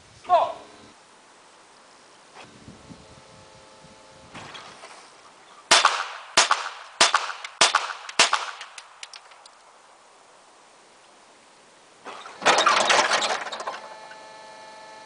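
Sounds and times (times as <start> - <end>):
pistol shots with echo: 5.7 - 9.0.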